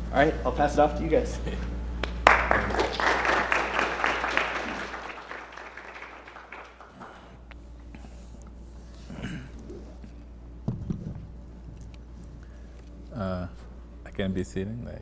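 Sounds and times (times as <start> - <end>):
audience applause: 2.0 - 7.4.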